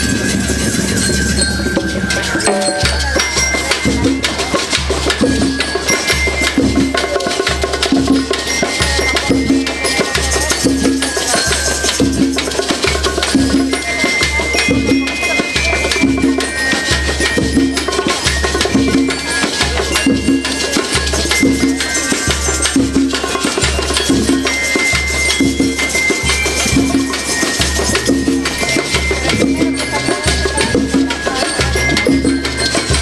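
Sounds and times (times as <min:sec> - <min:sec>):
bell lyres playing tune: 0:00.0 - 0:33.0
shakers and tambourines rattling: 0:00.0 - 0:33.0
snare drums: 0:00.0 - 0:33.0
bass drums pounding: 0:26.6 - 0:33.0.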